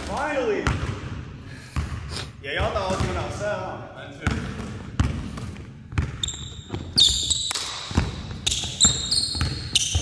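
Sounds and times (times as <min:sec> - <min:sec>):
basketball bouncing on wooden floor: 0:00.6 - 0:01.2, 0:04.2 - 0:10.0
sneakers squeaking on wood: 0:05.9 - 0:10.0.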